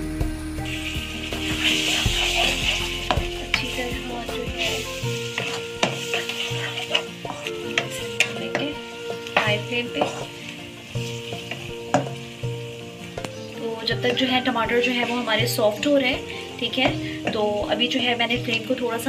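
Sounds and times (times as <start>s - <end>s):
food sizzling in a pan: 0.0s - 19.0s
metal spatula scraping a pan: 0.7s - 12.4s.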